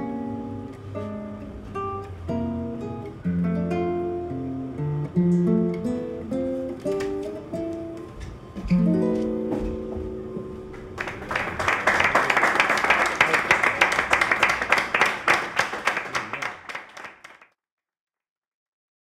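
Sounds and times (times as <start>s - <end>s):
people applauding: 10.8s - 17.5s.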